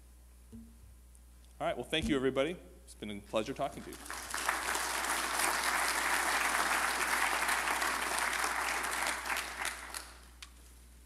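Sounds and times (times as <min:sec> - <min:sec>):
audience applauding: 0:03.8 - 0:10.3.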